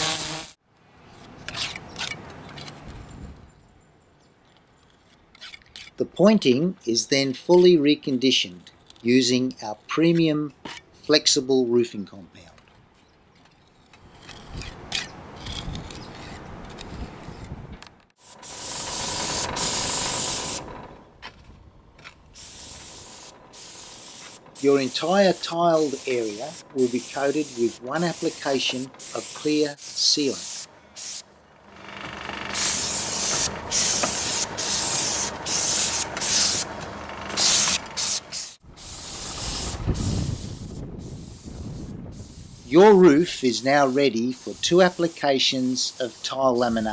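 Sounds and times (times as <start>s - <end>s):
spray wand hissing: 0.0s - 0.6s, 18.2s - 20.6s, 22.4s - 31.3s, 32.5s - 36.7s, 37.4s - 46.9s.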